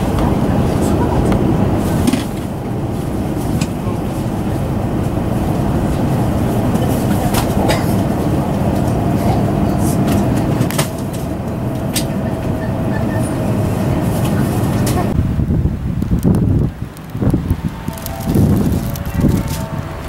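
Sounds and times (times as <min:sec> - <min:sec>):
train rumbling: 0:00.0 - 0:20.0
scattered clicks: 0:16.0 - 0:19.7.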